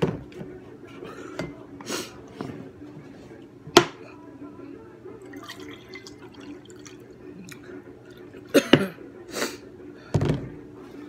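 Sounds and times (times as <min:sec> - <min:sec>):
juice pouring into a glass: 0:05.2 - 0:08.3.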